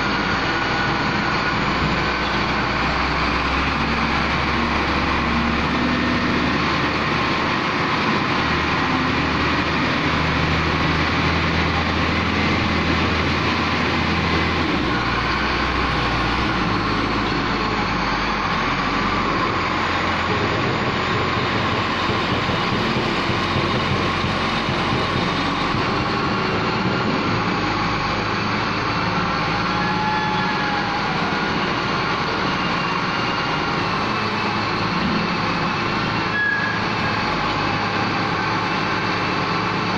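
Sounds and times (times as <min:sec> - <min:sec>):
diesel engine under load: 0:00.0 - 0:39.9
loader bucket digging material: 0:01.6 - 0:28.5.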